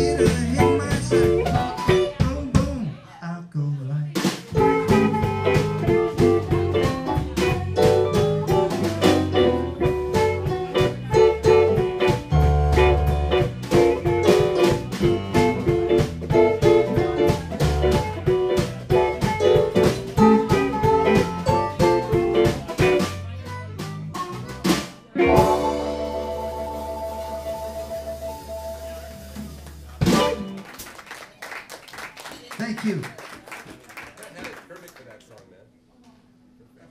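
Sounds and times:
electric guitar: 0.0s - 2.3s, 4.6s - 23.2s, 25.2s - 30.7s
drum kit: 0.0s - 3.0s, 4.1s - 31.0s.

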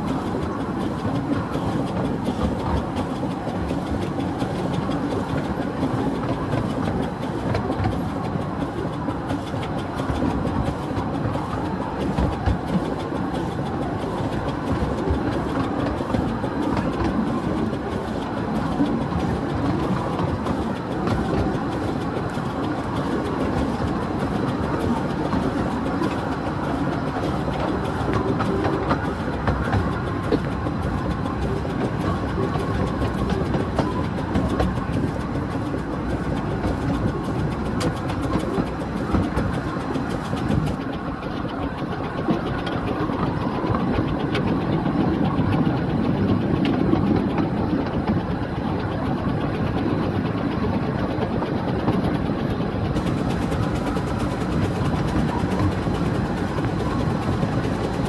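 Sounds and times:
train running noise: 0.0s - 58.0s
wheels clicking over rail joints: 0.0s - 58.0s.

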